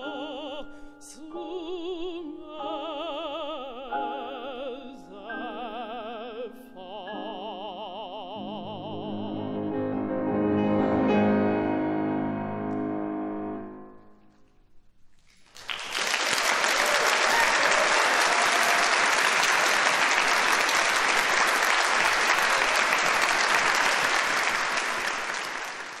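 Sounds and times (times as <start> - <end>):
audience applause: 15.2 - 26.0.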